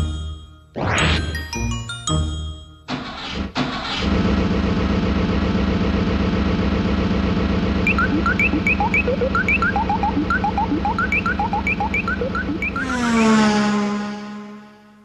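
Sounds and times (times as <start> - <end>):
engine sputters: 3.1 - 13.4.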